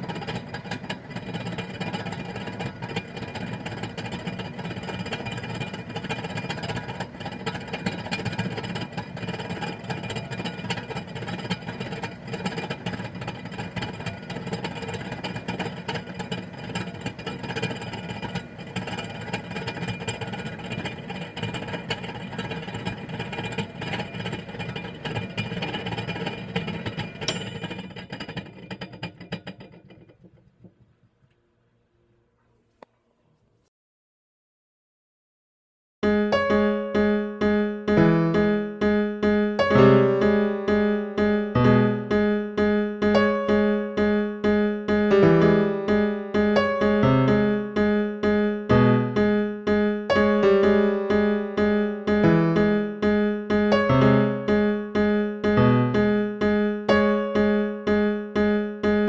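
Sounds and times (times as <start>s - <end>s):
microwave oven humming: 0.0s - 30.2s.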